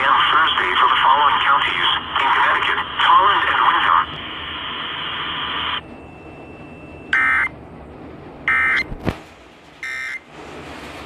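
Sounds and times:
radio hiss: 0.0s - 5.8s.

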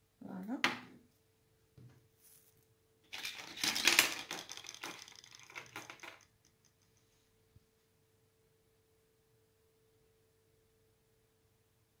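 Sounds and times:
faint steady hum: 4.9s - 12.0s.

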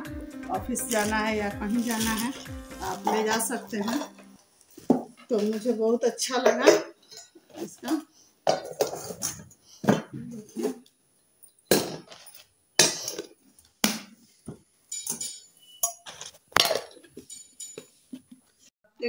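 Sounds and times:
metal containers clinking: 0.6s - 10.8s, 14.9s - 18.3s.

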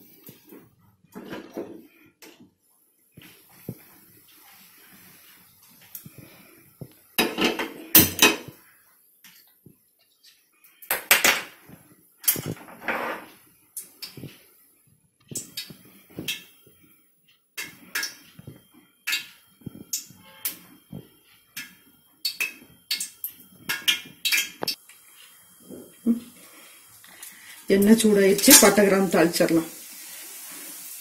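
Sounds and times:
metal pots and utensils clattering: 1.1s - 2.0s, 7.2s - 8.6s.

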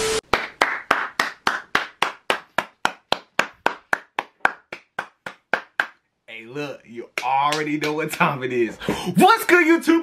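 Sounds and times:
person clapping: 0.2s - 6.0s, 7.1s - 8.4s.

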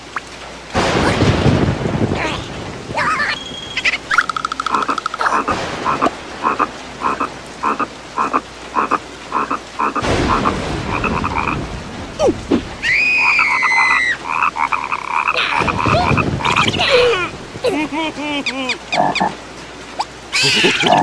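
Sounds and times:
rain: 0.0s - 21.0s
frogs croaking: 3.4s - 11.7s, 12.8s - 17.4s, 18.0s - 19.4s
high drawn-out cartoon cry: 12.8s - 19.2s, 20.3s - 21.0s.

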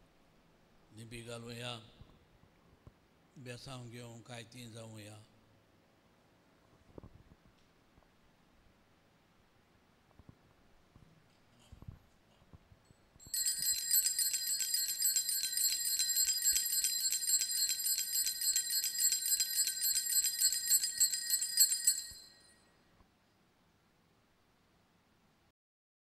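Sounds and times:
altar bells jingling: 13.2s - 22.6s.

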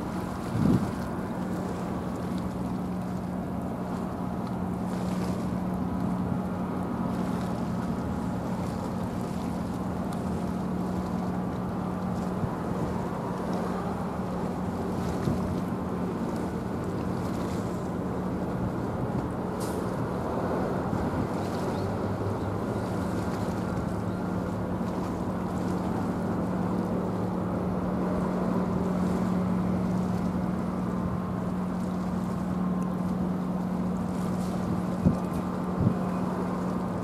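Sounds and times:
wind noise on microphone: 0.0s - 1.2s, 34.5s - 36.4s
sea wash: 0.0s - 37.0s.

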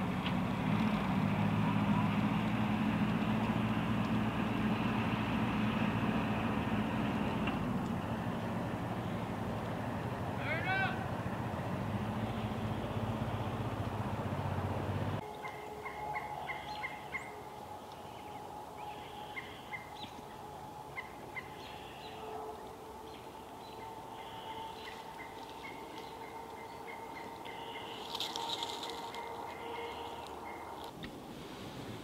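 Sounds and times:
tractor engine running: 0.0s - 17.8s
faint steady drone: 1.6s - 31.0s
birds chirping: 4.5s - 31.2s.

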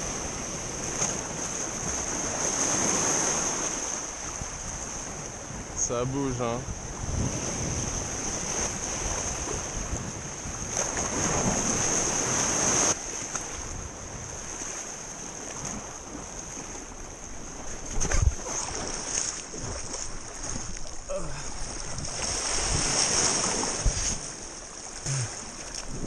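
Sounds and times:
surf splashing around rock: 0.0s - 5.6s, 6.9s - 26.0s
wind on microphone: 6.4s - 26.0s.

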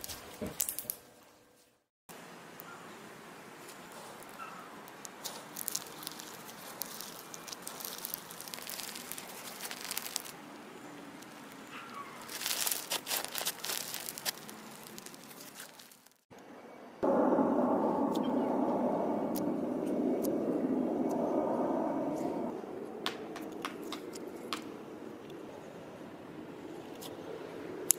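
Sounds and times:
slime crackling and popping: 4.9s - 10.4s, 12.2s - 16.2s.

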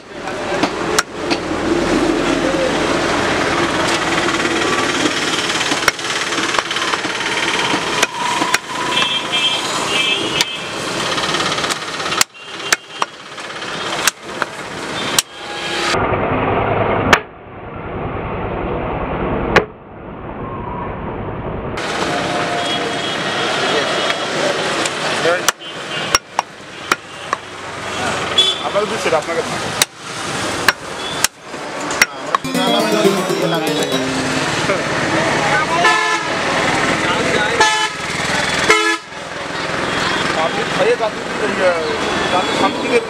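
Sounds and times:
street traffic: 0.0s - 16.0s, 21.8s - 32.2s, 34.8s - 43.0s.

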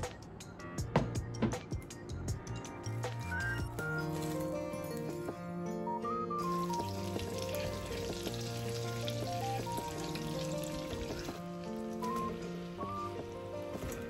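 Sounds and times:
background music: 0.0s - 14.0s
butter sizzling in frying pan: 6.4s - 13.0s.

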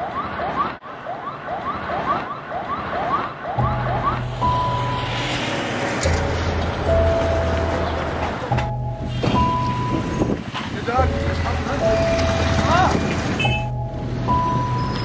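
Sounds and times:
fast yelping siren: 0.0s - 4.8s
low droning music: 3.6s - 10.3s.

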